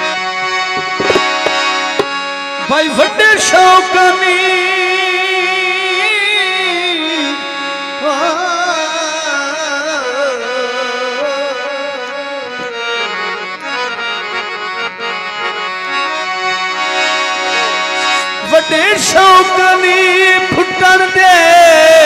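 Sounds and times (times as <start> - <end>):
light drumming: 0.7 - 2.1.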